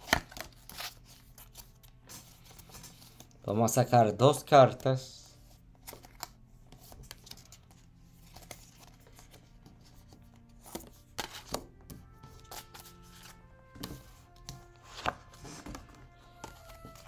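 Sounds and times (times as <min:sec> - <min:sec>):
cards snapping and sliding: 0:00.0 - 0:03.3, 0:10.6 - 0:11.7, 0:12.3 - 0:15.8
faint soft background music: 0:00.0 - 0:17.0.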